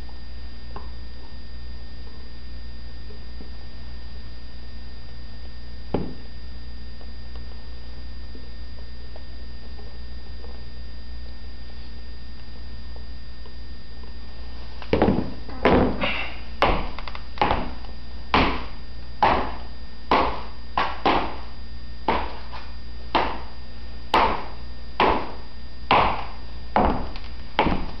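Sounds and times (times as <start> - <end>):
footsteps clicking on hard floor: 14.8 - 16.0, 25.9 - 28.0.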